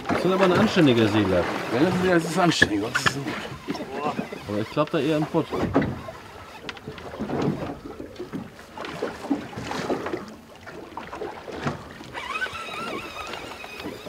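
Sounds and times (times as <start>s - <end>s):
water slapping boat hull: 0.0s - 14.0s
fishing rod and reel knocks: 1.7s - 7.6s.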